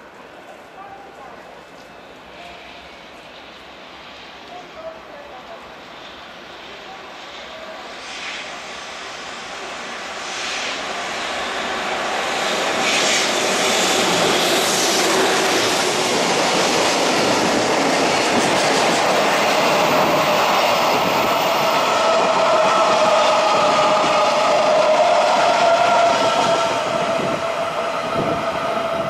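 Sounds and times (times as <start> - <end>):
freight train passing: 0.0 - 29.0.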